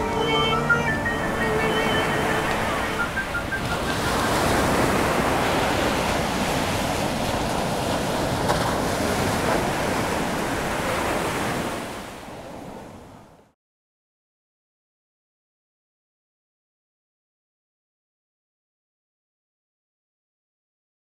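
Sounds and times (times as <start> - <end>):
ocean surf rushing: 0.0 - 13.6.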